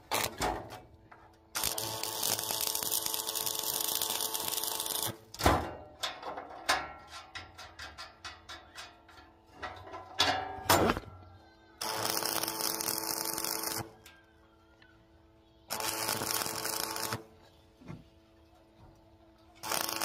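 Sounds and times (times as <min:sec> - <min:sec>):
light metal taps and clinks: 0:06.0 - 0:10.0.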